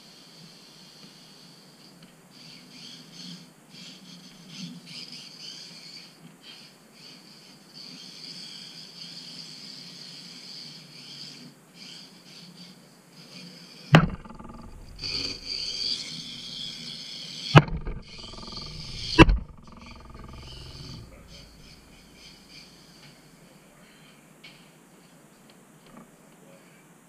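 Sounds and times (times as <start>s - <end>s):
sharp knocks: 14.0s - 16.0s, 17.6s - 22.0s.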